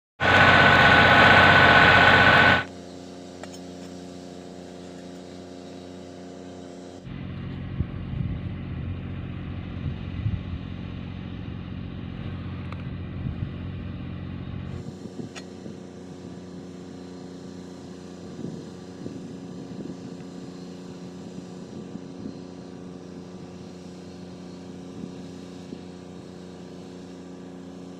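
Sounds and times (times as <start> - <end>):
arc welding crackling: 0.2 - 2.7.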